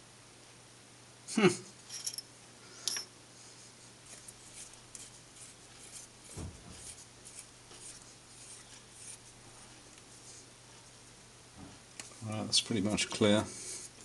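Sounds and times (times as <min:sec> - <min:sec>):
soft thump: 0:06.3 - 0:06.9.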